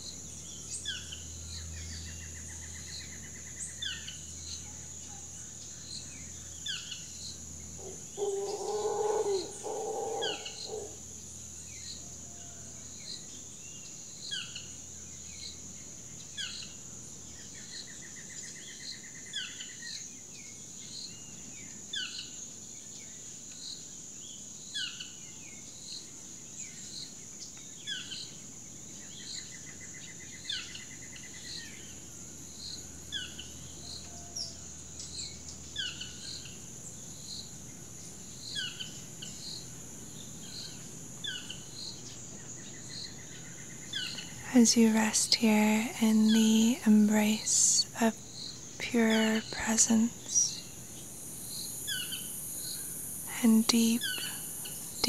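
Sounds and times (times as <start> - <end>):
insect drone: 0.0 - 55.0
birds chirping: 7.7 - 11.0, 38.6 - 55.0.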